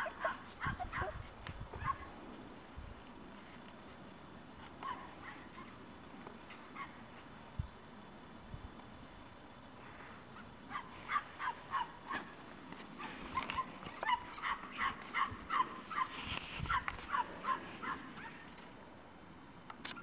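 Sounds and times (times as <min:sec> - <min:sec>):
dog yipping high barks: 0:00.0 - 0:01.2, 0:01.8 - 0:02.1, 0:13.4 - 0:16.1.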